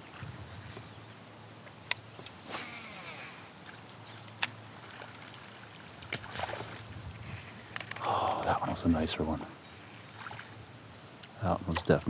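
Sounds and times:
faint lapping water: 0.0s - 12.0s
short whirring hiss: 2.2s - 3.6s
kayak gear clicks and knocks: 7.6s - 8.1s, 11.7s - 12.0s.

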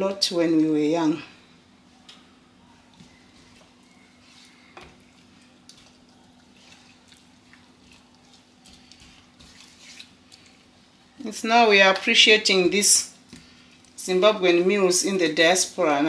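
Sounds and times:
faint steady hum: 0.0s - 16.0s
wooden spoon stirring sauce: 2.3s - 11.2s, 12.4s - 15.1s
sauce simmering: 2.9s - 11.2s.

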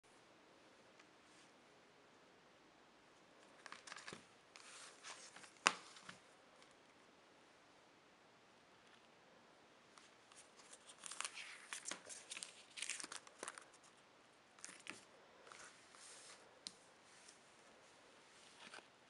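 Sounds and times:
plastic and card crinkling: 3.5s - 6.2s, 10.3s - 14.0s, 14.6s - 15.7s.

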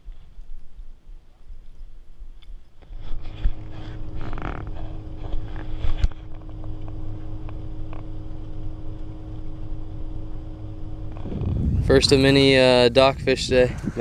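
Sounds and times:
outboard motor running: 2.8s - 14.0s.

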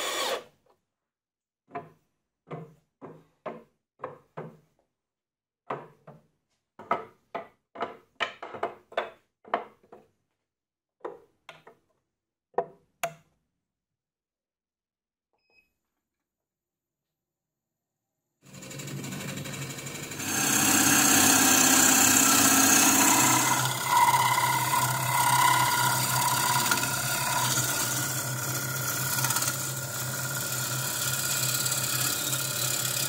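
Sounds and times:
gouge cutting spinning wood: 18.5s - 33.0s
wood lathe humming: 18.5s - 33.0s.

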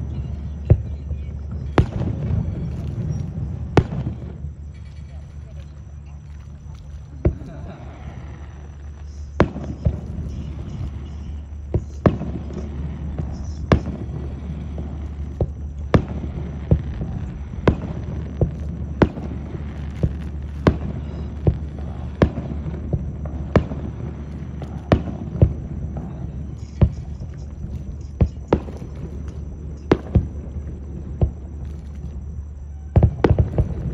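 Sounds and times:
fireworks bangs: 0.0s - 33.9s
low rumble: 0.0s - 33.9s.

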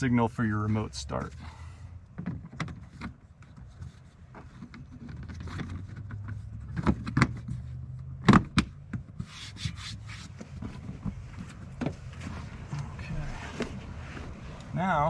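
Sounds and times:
plastic trim rubbing and scraping: 2.2s - 14.8s
low steady hum: 9.7s - 15.0s.

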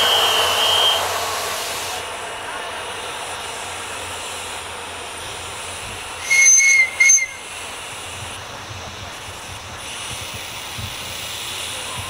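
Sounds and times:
steam locomotive whistle: 0.0s - 1.9s, 6.2s - 7.5s
steady hiss of steam: 0.0s - 12.0s.

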